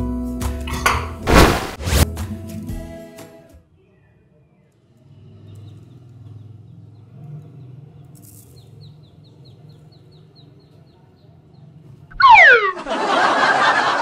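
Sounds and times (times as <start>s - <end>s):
baby chicks peeping: 5.4s - 12.0s.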